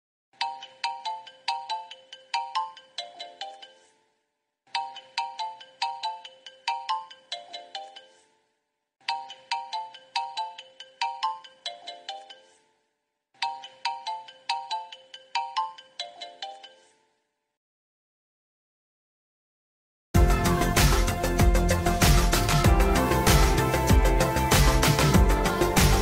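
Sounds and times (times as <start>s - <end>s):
phone ringtone melody: 0.4s - 4.0s, 4.7s - 8.3s, 9.0s - 12.6s, 13.4s - 17.0s.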